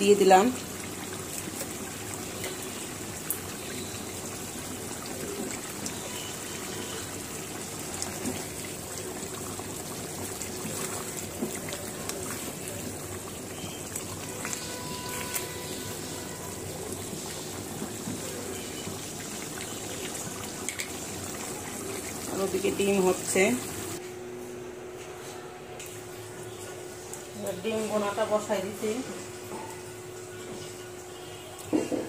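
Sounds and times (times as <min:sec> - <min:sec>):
curry bubbling in a pan: 0:00.0 - 0:24.0.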